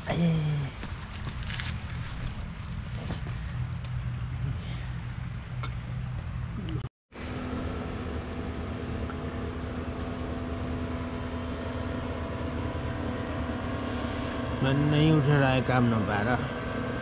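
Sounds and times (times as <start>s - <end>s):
vehicle engine running: 0.6s - 17.0s
steady low drone: 1.7s - 17.0s.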